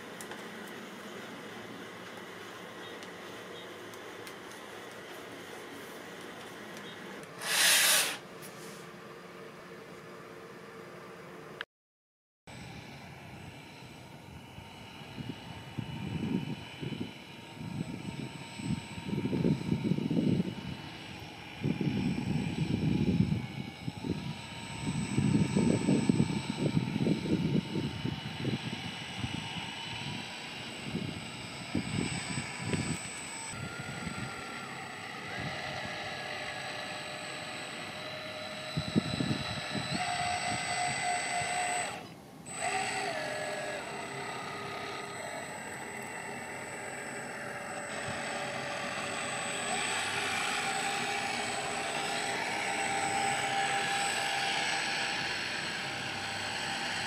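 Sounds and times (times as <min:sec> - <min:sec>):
model ship motor whining: 0:06.1 - 0:08.2, 0:12.8 - 0:57.0
wind gusts on microphone: 0:14.3 - 0:34.5, 0:38.7 - 0:41.6.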